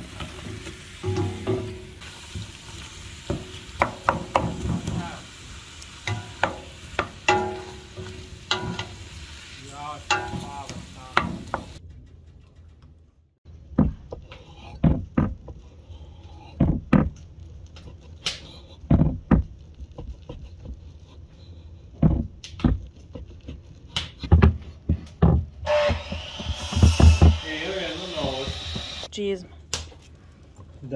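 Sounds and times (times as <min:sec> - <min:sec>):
soft sizzle: 0:00.0 - 0:11.8
wooden spoon stirring in pot: 0:00.0 - 0:11.8, 0:13.8 - 0:25.8.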